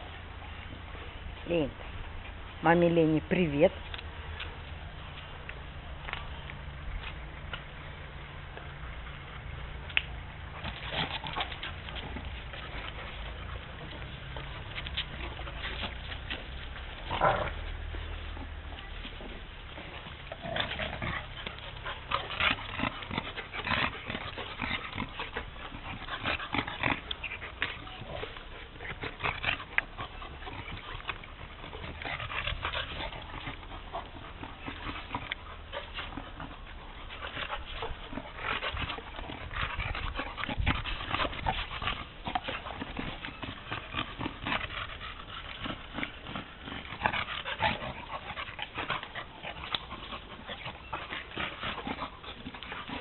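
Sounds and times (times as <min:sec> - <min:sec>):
dogs scuffling: 0:00.5 - 0:53.0.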